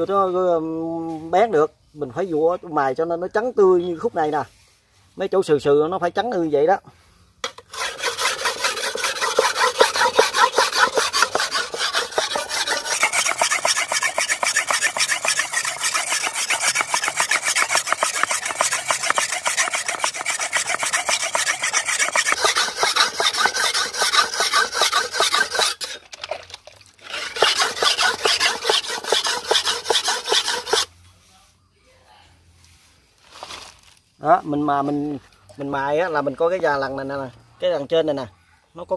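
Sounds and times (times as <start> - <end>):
knife scraping on whetstone: 7.4 - 26.1, 27.0 - 30.9.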